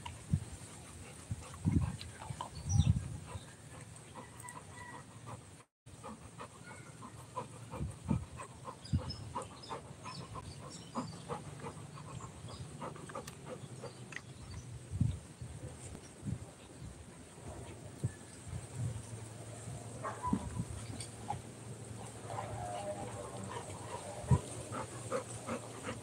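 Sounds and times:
dog panting: 0.1 - 14.7, 20.0 - 26.0
birds chirping: 6.1 - 14.8.

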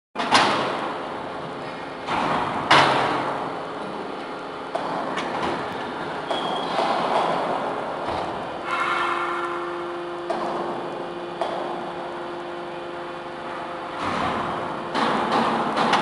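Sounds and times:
loud metal clangs: 2.0 - 3.4, 6.3 - 10.8.

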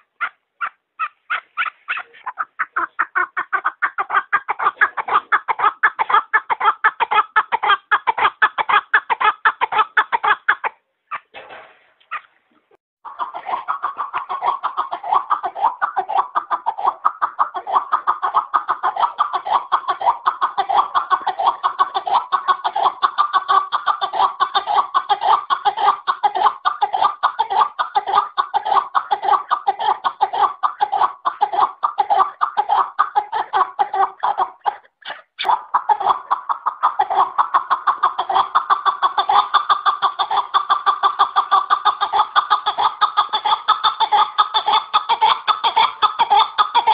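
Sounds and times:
partridge cackling call: 0.0 - 11.3.

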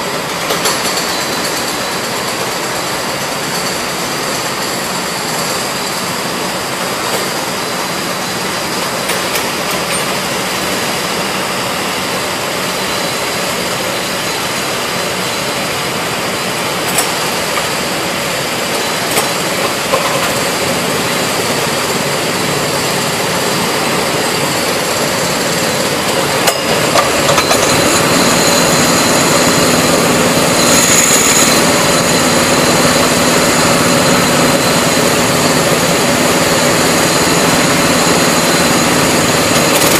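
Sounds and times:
go-kart engines idling: 0.0 - 39.9.

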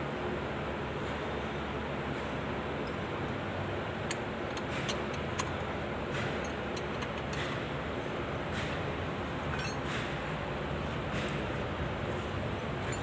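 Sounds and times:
steady background noise: 0.0 - 13.0
spanner clinking on bolt: 4.0 - 5.6, 6.3 - 7.6, 9.5 - 9.9.

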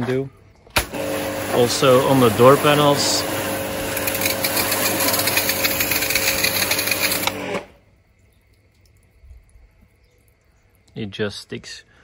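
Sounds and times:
pressure washer jet hissing: 0.8 - 7.7
motor hum: 0.8 - 7.8.

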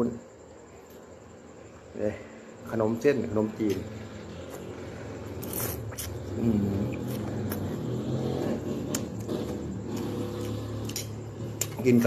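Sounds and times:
steady low hum: 0.0 - 12.0
person chewing noodles: 4.4 - 11.8.

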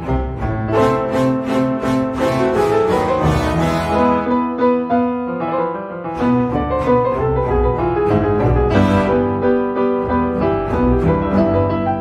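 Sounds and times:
low bowed strings: 0.0 - 4.3, 6.2 - 12.0
piano playing: 0.0 - 12.0.

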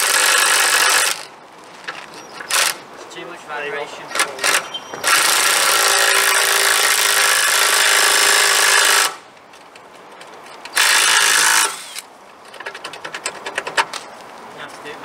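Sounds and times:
power tool running: 5.0 - 9.2, 10.8 - 12.1.

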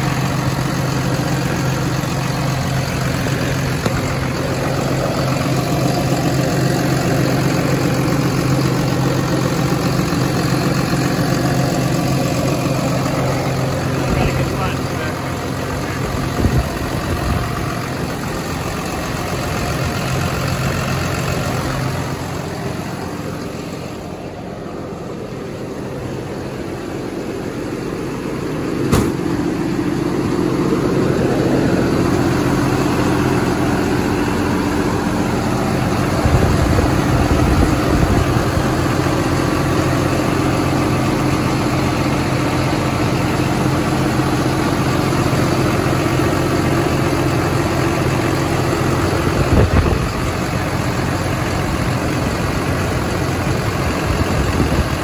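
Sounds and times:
diesel engine idling: 0.0 - 55.0
sharp knock: 28.9 - 29.3.

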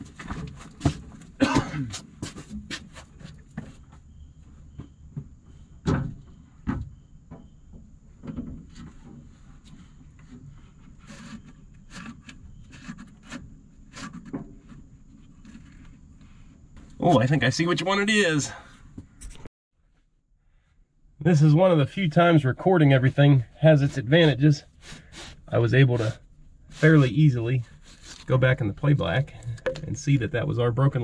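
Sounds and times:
hose knocking and rustling: 0.0 - 4.1, 4.7 - 17.0, 23.0 - 30.5.

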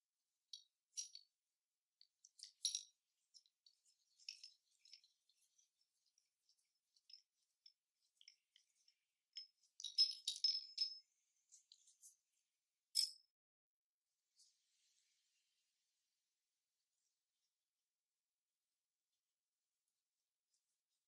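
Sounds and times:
metal parts clinking: 2.4 - 2.9, 9.8 - 11.0.

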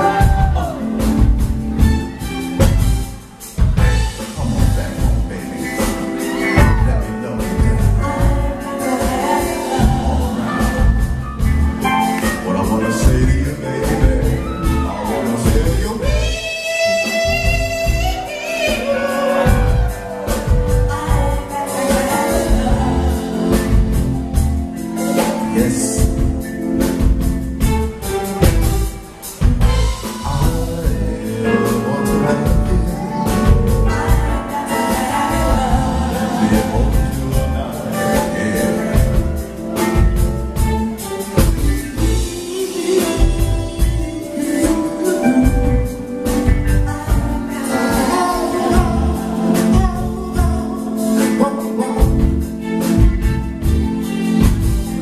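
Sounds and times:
man singing into microphone: 0.0 - 1.2, 4.3 - 11.1, 11.8 - 20.2, 25.2 - 26.4, 30.0 - 39.4, 40.8 - 52.6
live band playing: 0.0 - 55.0.

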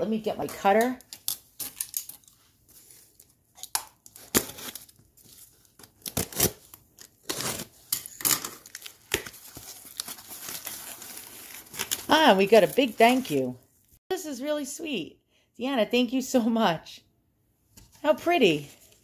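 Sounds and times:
tape ripping: 3.2 - 7.7
box cutter slitting tape: 5.9 - 8.8.

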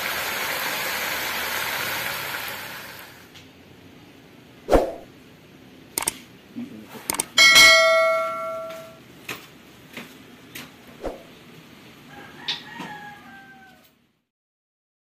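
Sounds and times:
sharp clicks: 6.0 - 6.2, 7.1 - 7.4
bell-like chime: 7.4 - 9.0.

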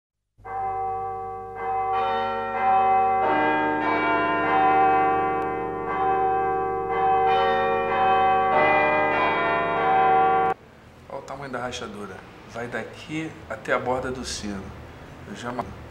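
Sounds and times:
church bells ringing: 0.4 - 10.6.

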